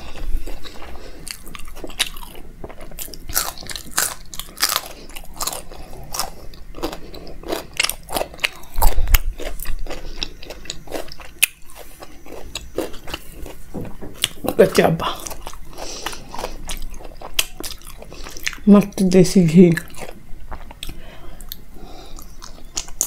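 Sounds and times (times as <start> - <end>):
person chewing wetly: 0.0 - 18.7, 19.8 - 23.0.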